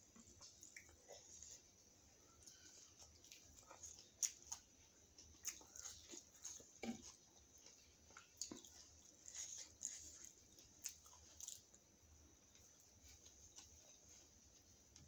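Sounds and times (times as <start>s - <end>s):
person chewing: 2.4s - 11.8s.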